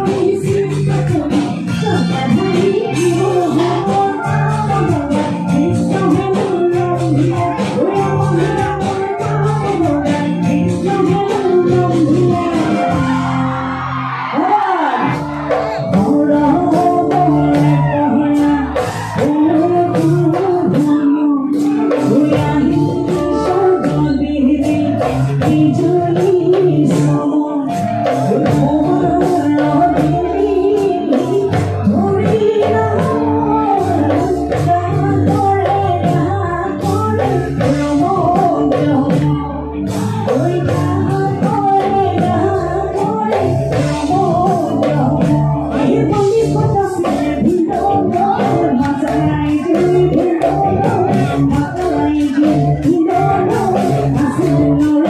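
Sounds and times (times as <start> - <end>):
band with drums and bass: 0.0 - 55.0
woman singing: 0.0 - 55.0.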